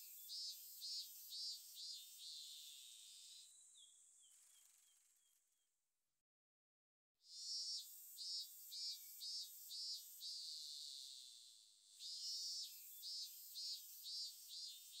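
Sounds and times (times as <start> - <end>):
cicada singing: 12.0 - 15.0.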